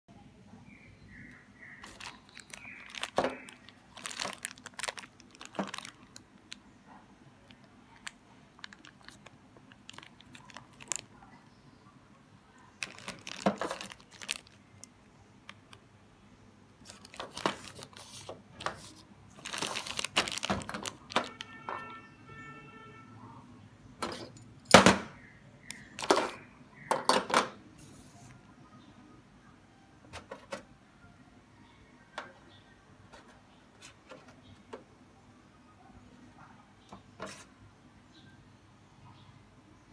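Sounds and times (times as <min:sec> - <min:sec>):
plastic bags crinkling: 0:01.7 - 0:06.6, 0:07.4 - 0:11.3, 0:12.8 - 0:15.8, 0:16.8 - 0:21.8.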